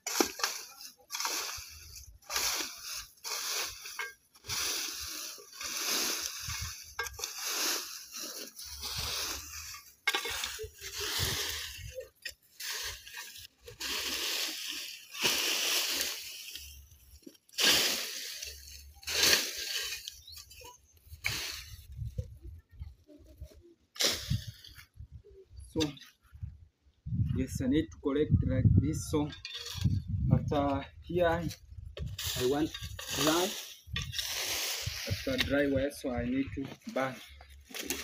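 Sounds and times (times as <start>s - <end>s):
hoe scraping dry leaves: 0.0s - 21.8s, 32.0s - 35.9s, 36.7s - 38.0s.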